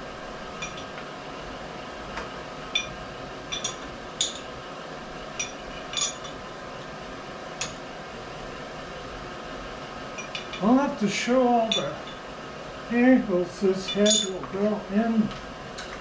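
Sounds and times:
wrench clinking on metal bolts: 0:13.9 - 0:14.5.

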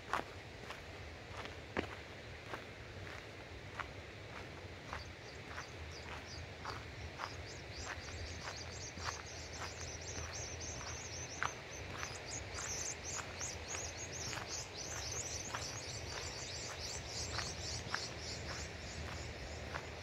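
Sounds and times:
footsteps on dirt road: 0:00.0 - 0:20.0
dense high-pitched chirping: 0:05.0 - 0:20.0.

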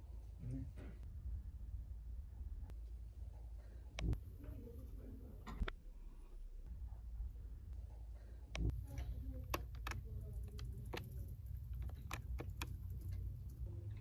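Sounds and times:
steady low hum: 0:00.0 - 0:14.0
calculator keys clicking: 0:09.4 - 0:13.2.

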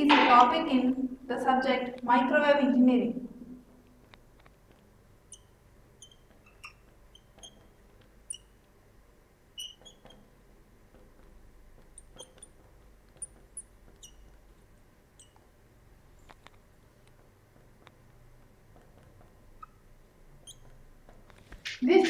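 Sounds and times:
marker pen squeaking: 0:04.5 - 0:08.6, 0:09.5 - 0:15.5, 0:18.7 - 0:22.0.

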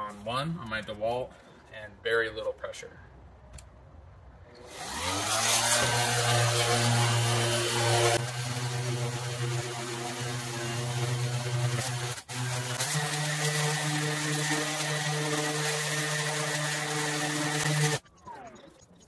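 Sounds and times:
orbital sander motor whirring: 0:04.6 - 0:18.6.

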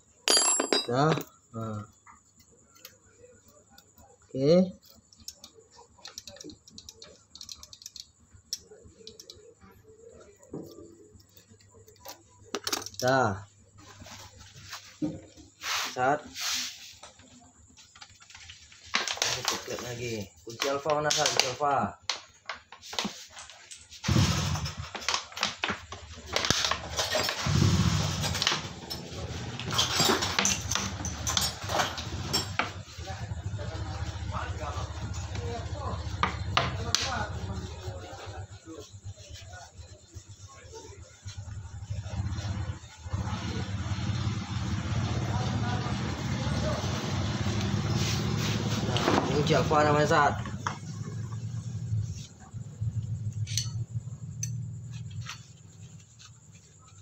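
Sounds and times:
metal engine parts clinking: 0:00.1 - 0:01.6, 0:04.8 - 0:09.7, 0:10.6 - 0:14.2, 0:26.5 - 0:36.9, 0:53.0 - 0:56.0
light metallic clicks and ticks: 0:04.8 - 0:09.5.

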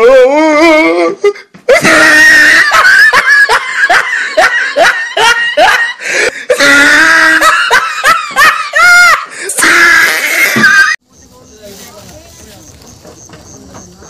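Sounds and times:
high-pitched laughter: 0:01.2 - 0:11.0.

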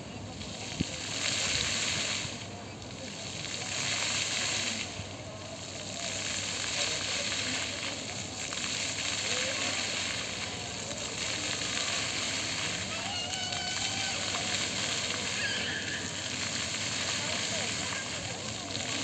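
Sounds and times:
fountain water splashing: 0:00.0 - 0:19.0.

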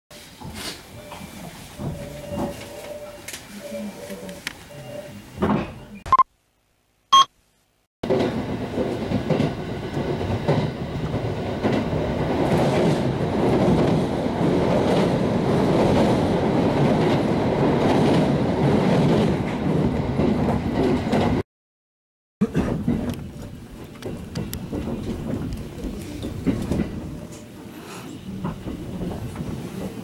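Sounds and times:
train running rumble: 0:08.0 - 0:21.4, 0:22.4 - 0:30.0
wheels clicking over rails: 0:22.4 - 0:30.0.

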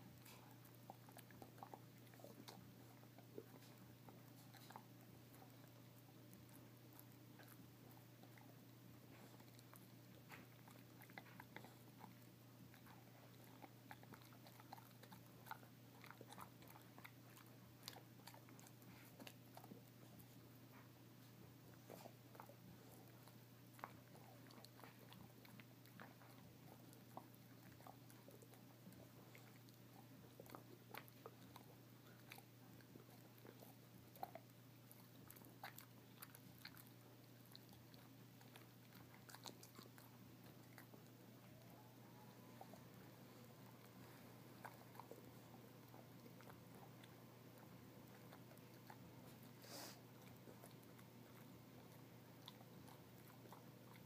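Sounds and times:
dog gnawing on a chew: 0:00.0 - 0:54.0
steady low hum: 0:00.0 - 0:54.0.

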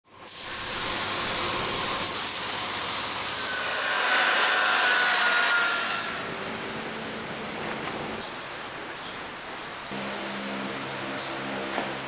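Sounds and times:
spray gun hissing: 0:00.2 - 0:03.8.

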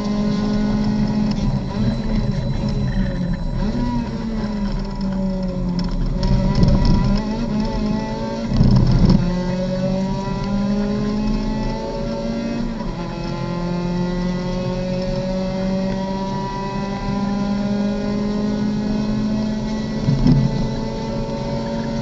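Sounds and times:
racing car engine accelerating: 0:00.0 - 0:22.0
loud rough rumbles: 0:19.8 - 0:22.0.

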